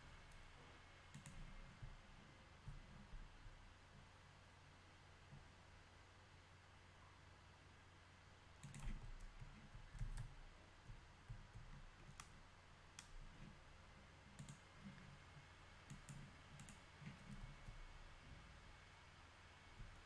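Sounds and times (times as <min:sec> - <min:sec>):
keyboard and mouse clicking: 0:01.1 - 0:02.0, 0:08.6 - 0:13.5, 0:14.3 - 0:15.1, 0:15.8 - 0:17.8.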